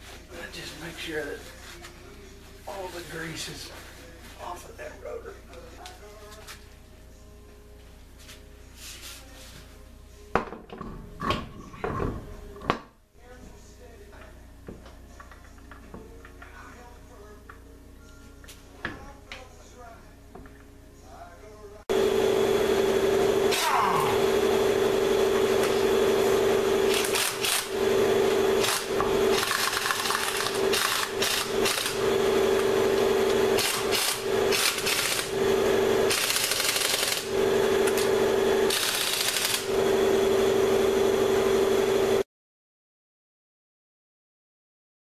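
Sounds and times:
power tool whining: 21.9s - 42.2s.

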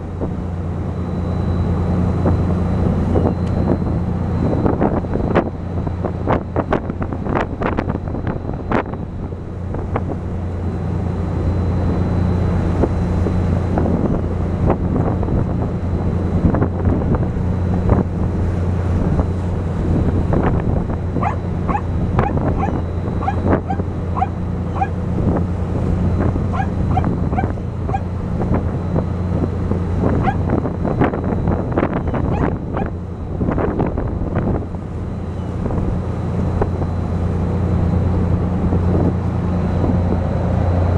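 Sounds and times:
boat engine running: 0.0s - 40.9s
wind on microphone: 1.4s - 40.9s
wake water rushing: 15.8s - 40.9s
gulls calling: 20.9s - 28.2s, 29.8s - 30.6s, 31.8s - 33.2s.

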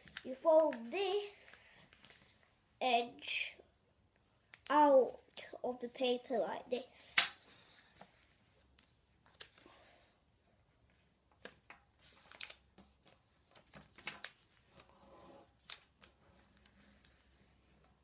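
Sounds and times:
paper rustling and crinkling: 0.0s - 2.4s, 10.9s - 17.8s.

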